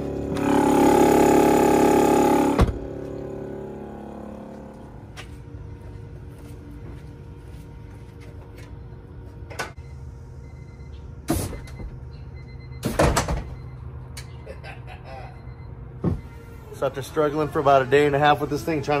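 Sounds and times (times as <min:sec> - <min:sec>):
air compressor humming: 0:00.0 - 0:13.6.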